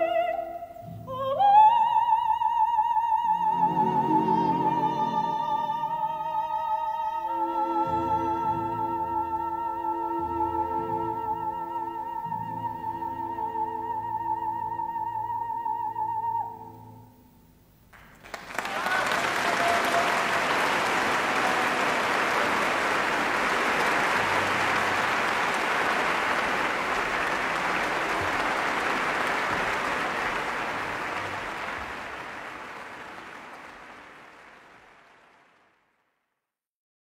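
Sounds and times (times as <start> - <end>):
audience applauding: 17.9 - 36.0.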